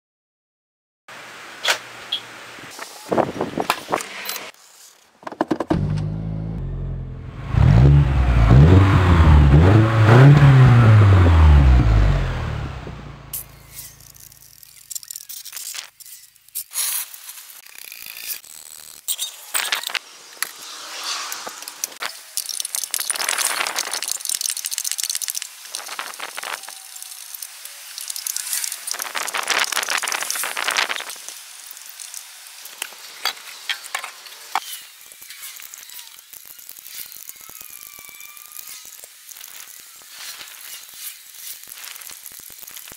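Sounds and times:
harsh scraping noise: 19.2 - 22.1.

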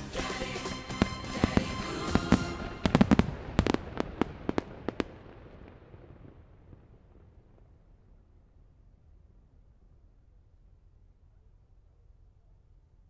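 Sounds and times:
music: 0.0 - 3.2
fireworks bursting: 0.0 - 8.5
rumbling echo: 0.6 - 9.1.

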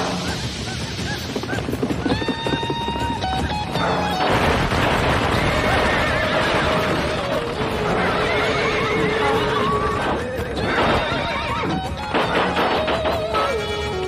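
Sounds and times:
horses neighing and squealing: 0.0 - 4.2, 4.8 - 14.0
horse hoofbeats galloping: 0.0 - 14.0.

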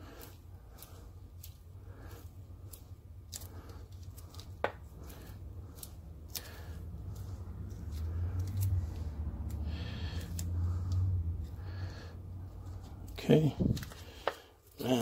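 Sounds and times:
low hum: 4.9 - 14.0.

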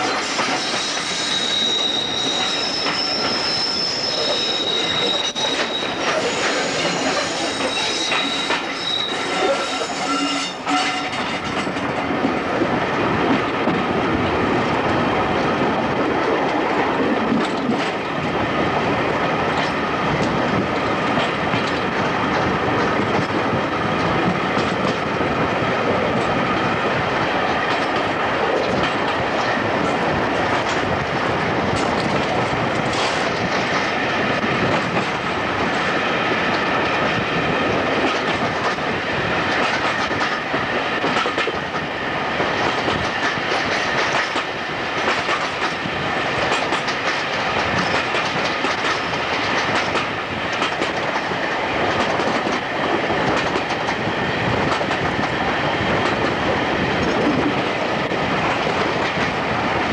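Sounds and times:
train wheels rolling on rails: 0.0 - 59.9
high wheel squeal: 0.1 - 11.3.

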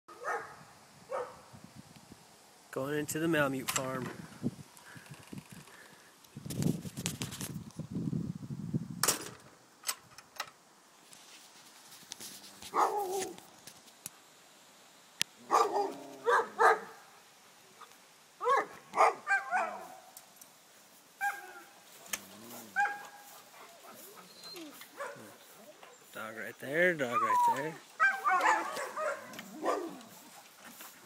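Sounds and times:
dogs barking yodel-like: 0.1 - 1.4, 12.7 - 13.4, 15.4 - 17.2, 17.8 - 20.2, 21.2 - 26.1, 27.0 - 30.6
rustling: 4.0 - 7.8, 11.0 - 14.3, 15.3 - 31.0.

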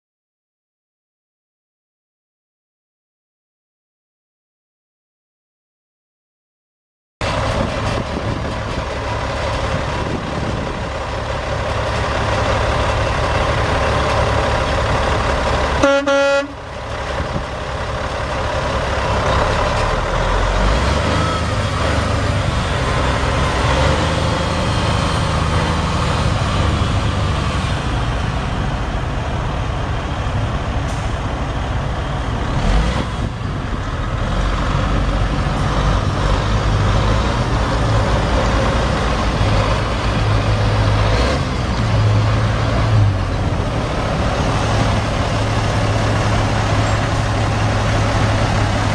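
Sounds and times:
diesel truck engine running: 7.2 - 48.9
truck horn: 15.7 - 16.8.

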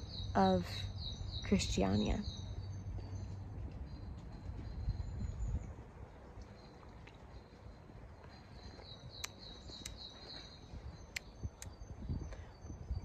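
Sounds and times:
low rumble: 0.0 - 9.9
small birds chirping: 0.0 - 13.0
sharp ticks: 9.2 - 10.0, 11.1 - 11.8.

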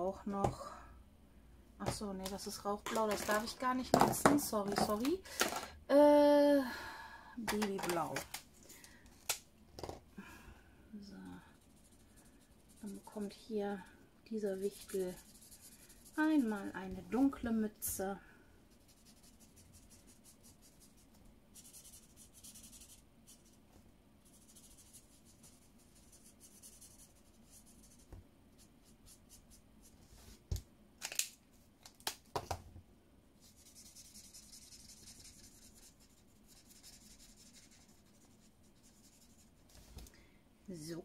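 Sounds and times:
marker scratching on paper: 14.4 - 16.7, 18.8 - 23.6, 24.2 - 29.6, 33.4 - 39.5.

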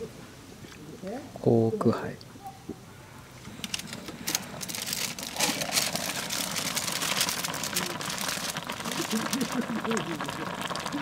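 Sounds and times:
food sizzling in a pan: 4.6 - 11.0.

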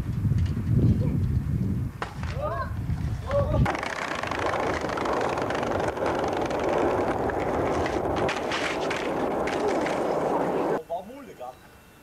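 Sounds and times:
skateboard wheels rolling on pavement: 1.5 - 10.8
skateboard clacks: 3.6 - 10.8.

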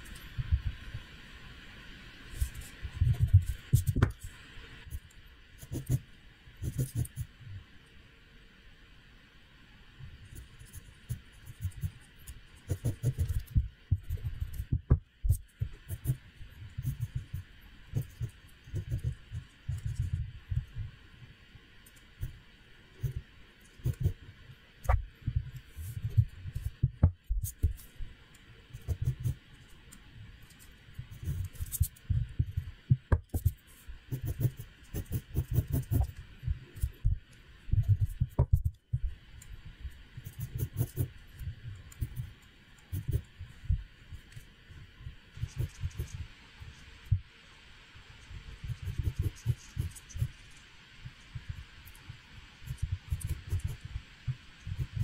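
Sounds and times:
pencil sketching on paper: 2.3 - 4.2, 5.6 - 6.0, 6.6 - 7.3, 10.4 - 20.8, 23.8 - 24.2, 24.9 - 27.9, 28.7 - 29.4, 31.1 - 37.1, 40.2 - 42.3, 42.9 - 43.8, 45.4 - 46.3, 48.5 - 50.3, 52.6 - 54.0, 54.6 - 55.0.

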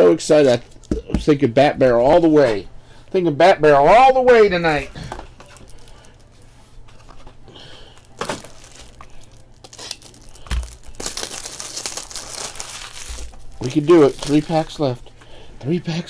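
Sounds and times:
foil wrapper crinkling and tearing: 5.0 - 6.4, 7.2 - 15.0.

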